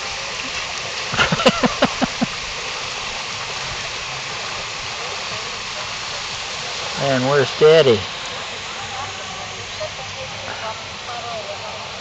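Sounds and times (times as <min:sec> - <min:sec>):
flowing pool water: 0:00.0 - 0:12.0
person laughing: 0:01.2 - 0:02.3.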